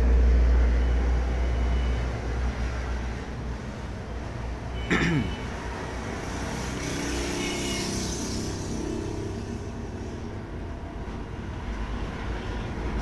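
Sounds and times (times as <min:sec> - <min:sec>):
traffic rumble: 0:00.0 - 0:13.0
engine passing by: 0:05.5 - 0:13.0.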